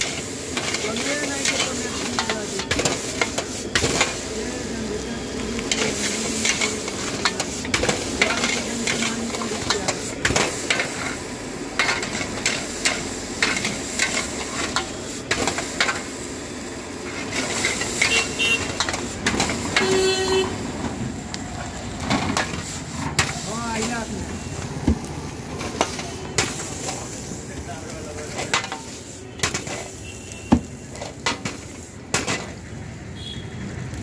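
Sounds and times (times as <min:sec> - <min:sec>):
metal spatula scraping a wok: 0:00.0 - 0:04.4, 0:05.6 - 0:16.2, 0:17.0 - 0:20.4, 0:28.2 - 0:30.3
food sizzling in hot oil: 0:00.0 - 0:34.0.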